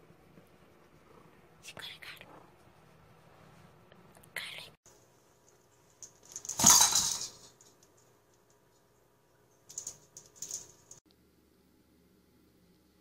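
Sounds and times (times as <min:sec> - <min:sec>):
plastic toys clattering: 0:05.9 - 0:08.0, 0:09.7 - 0:11.0.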